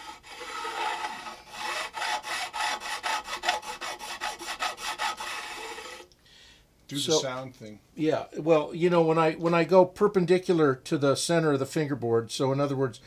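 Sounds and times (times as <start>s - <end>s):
metal file rasping on frets: 0.0s - 6.1s.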